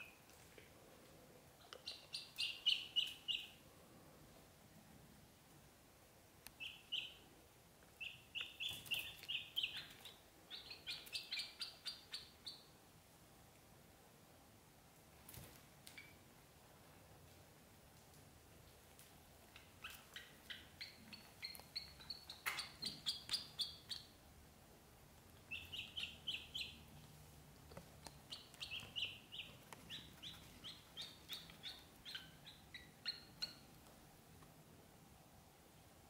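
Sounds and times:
ducklings peeping: 1.8 - 3.6, 6.6 - 7.2, 8.0 - 12.7, 19.6 - 24.2, 25.4 - 26.8, 28.1 - 33.7.

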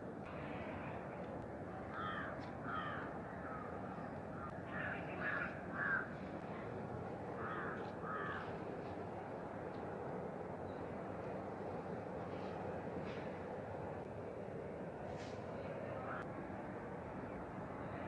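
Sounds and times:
crows cawing: 1.9 - 3.8, 4.4 - 6.2, 7.4 - 8.6.

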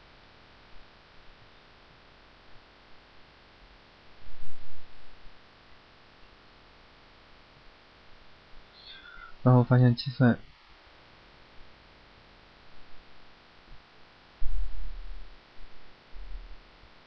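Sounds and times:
microphone electrical hum and hiss: 0.0 - 17.0.

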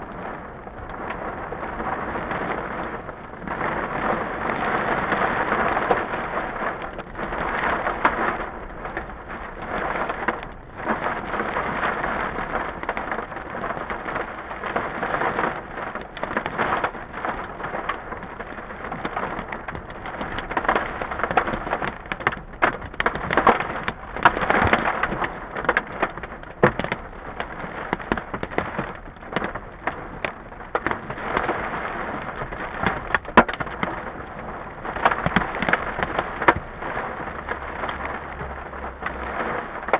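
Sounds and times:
heavy rain on car roof: 0.0 - 39.9
hailstones striking car: 0.1 - 39.9.

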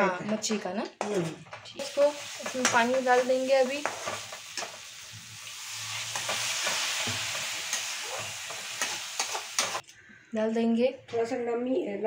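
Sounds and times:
spatula scraping metal pan: 1.0 - 5.0, 5.6 - 9.8
vegetables sizzling in pan: 1.7 - 9.8.

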